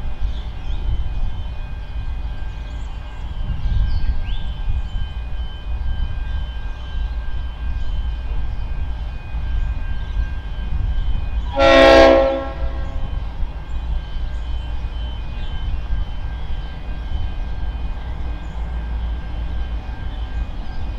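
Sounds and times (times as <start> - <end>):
locomotive horn blast: 11.5 - 13.0.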